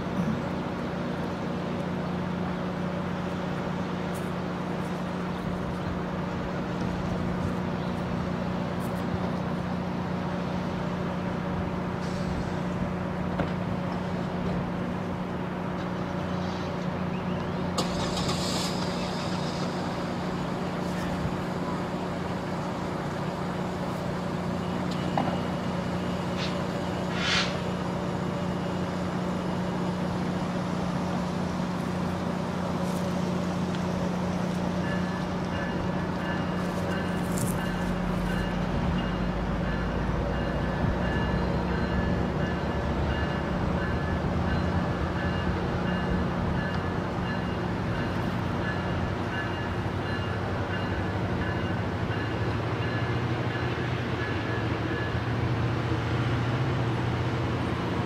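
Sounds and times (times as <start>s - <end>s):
diesel train idling: 0.0s - 58.0s
brief hisses: 12.0s - 12.7s, 17.8s - 20.3s, 26.4s - 27.7s.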